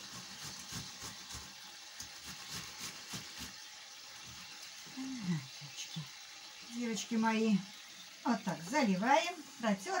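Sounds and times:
tomatoes grated on metal grater: 0:00.0 - 0:04.8.

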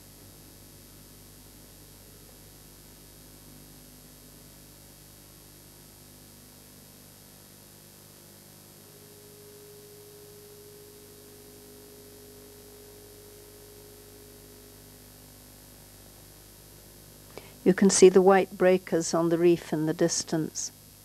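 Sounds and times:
background hiss and hum: 0:00.0 - 0:21.0
faint steady tone: 0:00.0 - 0:21.0.

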